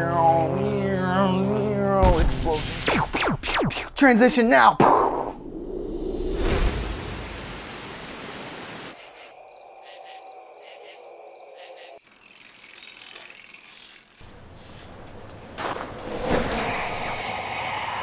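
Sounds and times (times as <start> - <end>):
insects chirping: 0.0 - 2.0, 7.4 - 14.7, 16.2 - 18.0.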